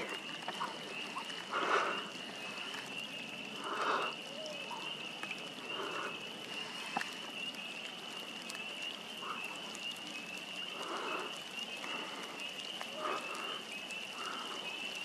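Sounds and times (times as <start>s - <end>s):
distant frog chorus trilling: 0.0s - 15.0s
rustling of grass and clothing: 0.0s - 15.0s.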